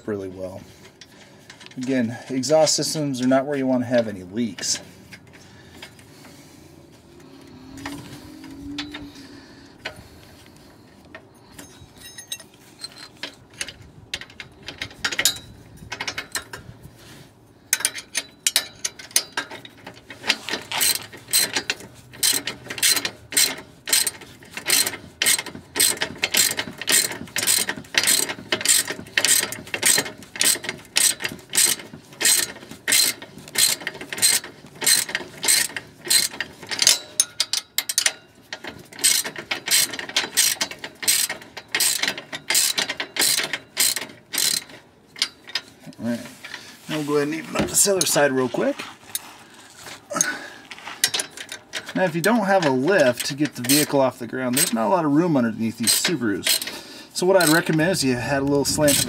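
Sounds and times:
ratcheting wrench clicking: 17.7s - 45.7s, 54.5s - 54.8s, 55.8s - 56.8s, 57.4s - 59.0s.

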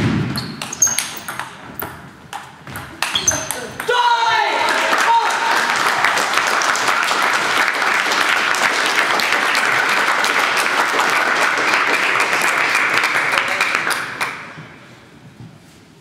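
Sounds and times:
spectators applauding: 4.4s - 14.5s.

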